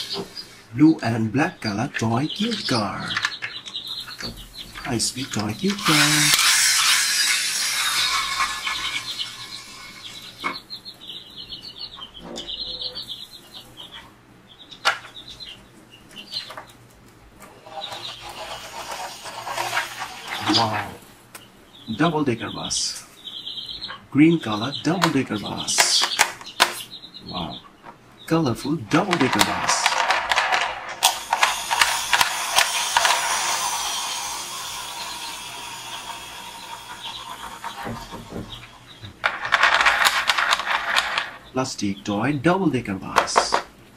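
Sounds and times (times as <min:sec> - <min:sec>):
toy wheels rattling and whirring: 0:00.0 - 0:00.6, 0:02.6 - 0:10.7, 0:17.5 - 0:21.1, 0:28.9 - 0:41.5
chicks peeping: 0:00.0 - 0:30.1, 0:31.0 - 0:43.7.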